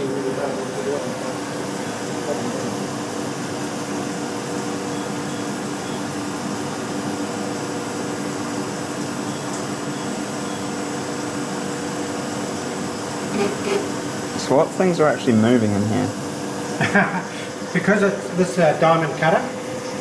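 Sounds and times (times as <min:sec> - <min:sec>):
coolant spraying hiss: 0:00.0 - 0:20.0
milling machine sawing ceramic: 0:12.3 - 0:20.0.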